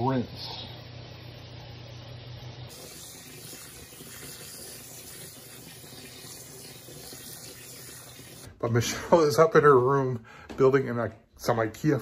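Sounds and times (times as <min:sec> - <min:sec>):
faucet water running into colander: 0:02.6 - 0:08.5.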